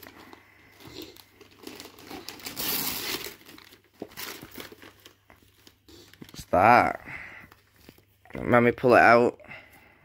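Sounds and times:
paper crinkling and rustling: 0:00.0 - 0:06.6.

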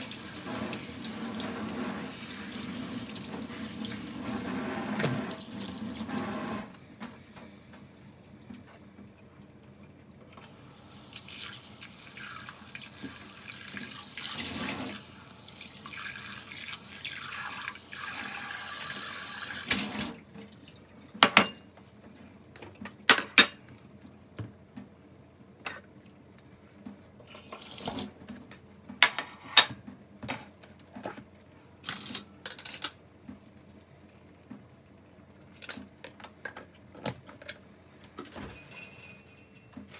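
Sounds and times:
tap water running into metal bowl: 0:00.0 - 0:06.7, 0:10.4 - 0:20.2.

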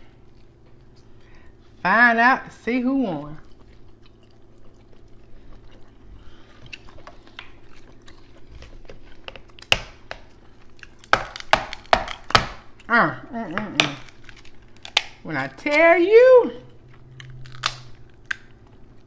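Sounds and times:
chewing and mouth clicks: 0:00.0 - 0:01.8, 0:03.0 - 0:12.9
crab shells cracking: 0:03.6 - 0:12.9, 0:13.5 - 0:15.8, 0:16.7 - 0:19.0.

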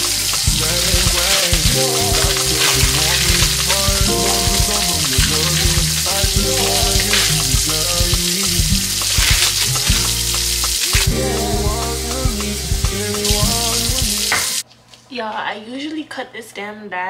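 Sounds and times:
background music with bass: 0:00.0 - 0:14.6
plastic wrapping crinkling: 0:00.6 - 0:08.0.

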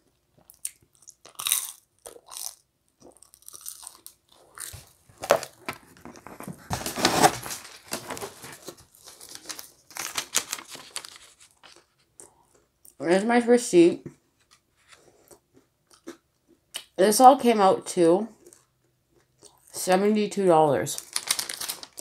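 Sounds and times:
chewing and biting pizza: 0:00.4 - 0:05.6
rustling against cardboard box: 0:05.2 - 0:11.8
paper receipt crinkling: 0:06.1 - 0:12.1, 0:21.0 - 0:22.0.

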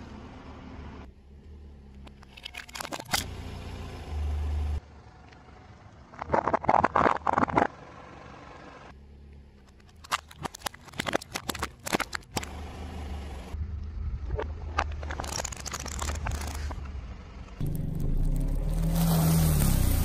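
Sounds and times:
plastic cracking under car tyre: 0:09.9 - 0:12.5, 0:14.8 - 0:16.8
car engine running: 0:12.0 - 0:20.0.

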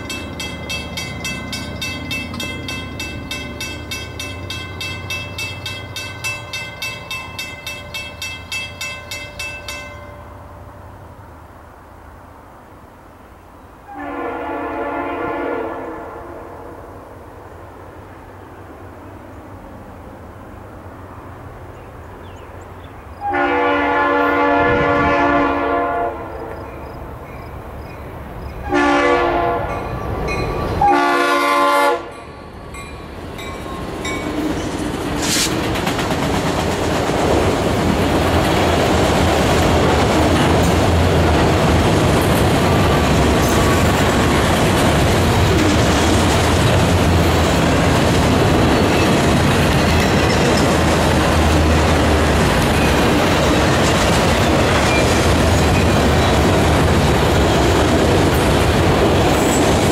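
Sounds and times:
rail cars clattering over joints: 0:00.0 - 0:10.2, 0:32.2 - 0:59.9
train rumbling past: 0:00.0 - 0:59.9
locomotive air horn blasts: 0:13.9 - 0:16.8, 0:23.2 - 0:26.6, 0:28.6 - 0:29.8, 0:30.8 - 0:32.2.

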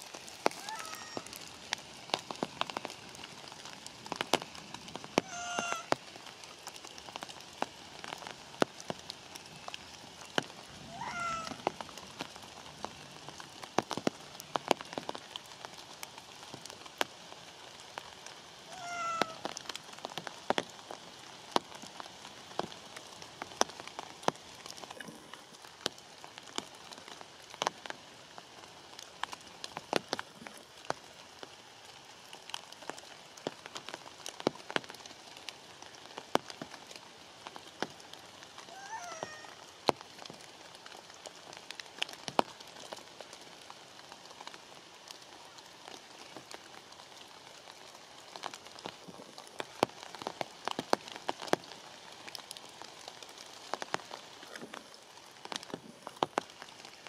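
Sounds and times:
rain pattering on leaves: 0:00.0 - 0:57.0
faint wavering call: 0:00.6 - 0:01.3.

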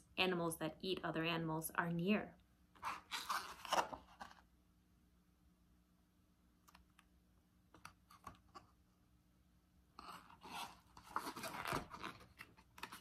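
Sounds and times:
paper pages rustling: 0:02.8 - 0:04.5.

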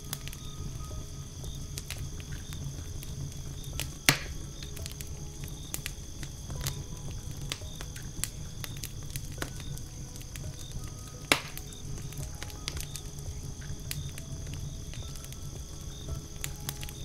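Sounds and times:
campfire crackling: 0:00.0 - 0:17.0
logs snapping: 0:01.7 - 0:17.0
loud pop: 0:11.3 - 0:11.6.

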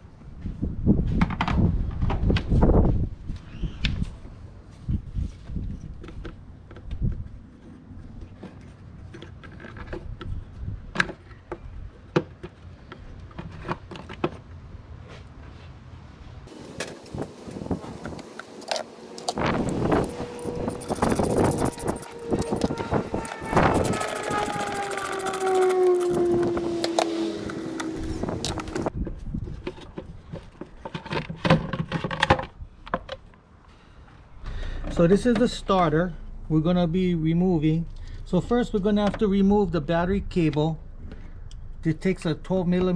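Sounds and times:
whine with falling pitch: 0:18.1 - 0:28.9.

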